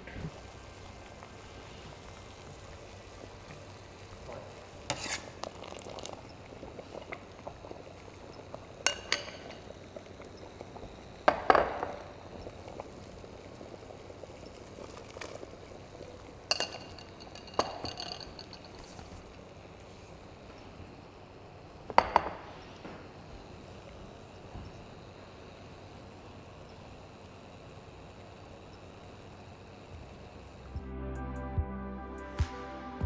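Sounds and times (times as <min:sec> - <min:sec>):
faint hiss from pot: 0:00.0 - 0:30.8
metal and glass clinking: 0:16.5 - 0:18.8.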